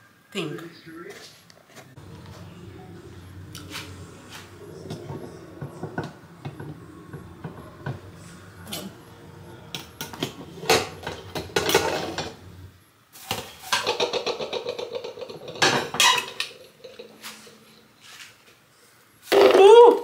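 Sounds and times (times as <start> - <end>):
pot and utensils knocking: 2.0 - 12.7, 13.3 - 17.2
utensils scraping pot: 2.0 - 18.3.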